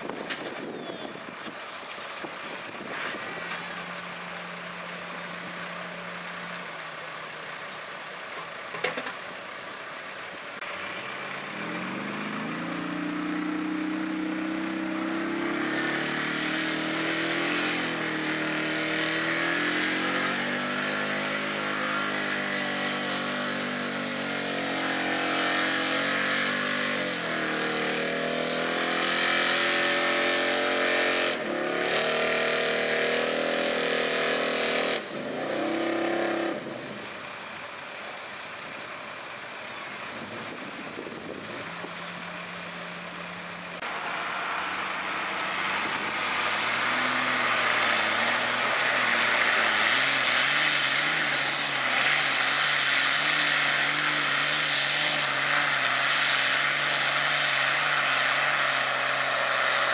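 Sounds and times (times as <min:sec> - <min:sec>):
truck engine at full throttle: 0:00.0 - 0:59.9.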